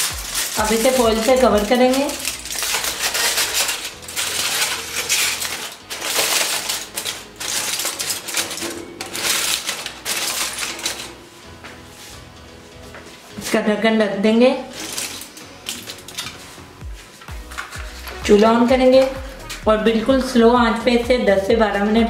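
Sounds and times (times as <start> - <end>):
aluminium foil crinkling: 0.0 - 11.3, 14.6 - 19.6.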